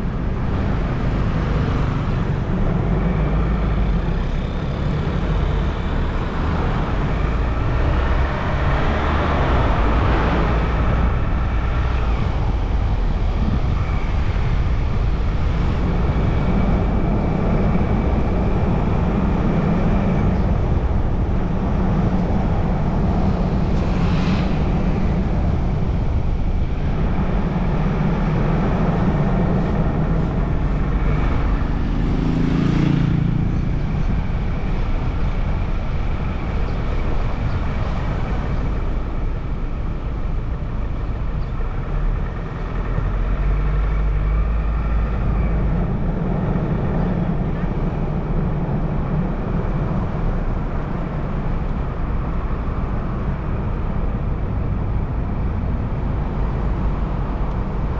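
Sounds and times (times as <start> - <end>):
road and traffic rumble: 0.0 - 57.9
vehicle passing: 28.9 - 35.2.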